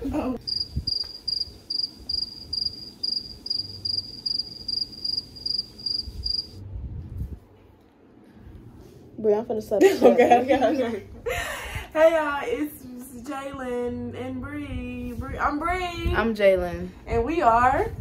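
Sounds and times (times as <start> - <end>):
cricket chirping: 0.4 - 6.6.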